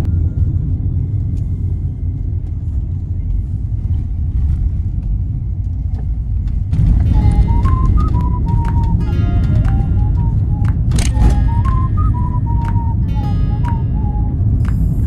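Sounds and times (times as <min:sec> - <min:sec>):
car road and engine noise: 0:00.0 - 0:15.0
melodic music: 0:07.0 - 0:15.0.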